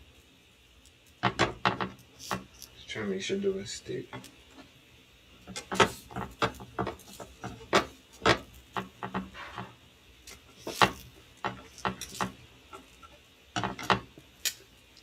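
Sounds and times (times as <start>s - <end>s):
spatula scraping a frying pan: 5.4s - 14.1s.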